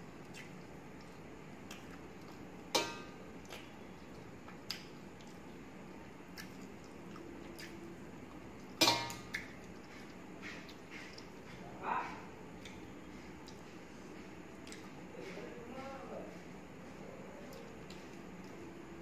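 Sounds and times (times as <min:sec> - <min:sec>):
chewing clicks: 0:00.2 - 0:02.4, 0:06.4 - 0:07.8, 0:14.6 - 0:14.9.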